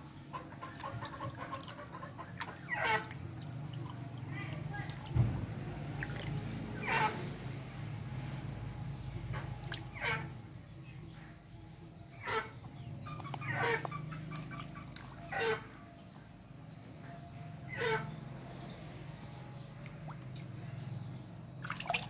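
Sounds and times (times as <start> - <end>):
chickens calling: 0.0 - 4.6, 6.8 - 7.3, 9.3 - 10.4, 12.0 - 16.1, 17.1 - 18.2
low steady hum: 0.0 - 22.0.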